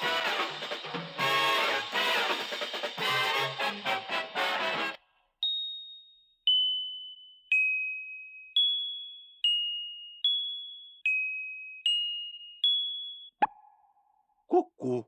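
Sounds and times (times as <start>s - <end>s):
glockenspiel notes: 5.4s - 13.4s.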